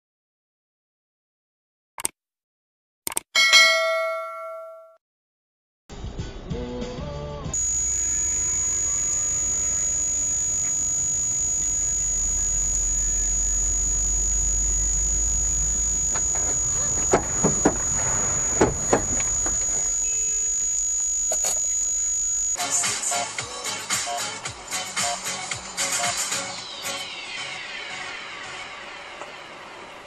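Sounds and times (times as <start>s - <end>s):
high-pitched whine: 7.6s - 22.6s
road and engine noise: 7.8s - 20.7s, 28.2s - 30.0s
car collision bangs and knocks: 17.0s - 19.6s.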